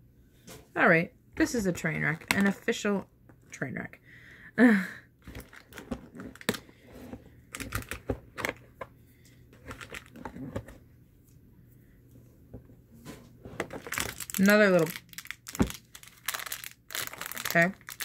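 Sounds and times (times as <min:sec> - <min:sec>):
packaging crinkling: 0:05.2 - 0:06.7, 0:09.6 - 0:10.2, 0:13.6 - 0:18.0.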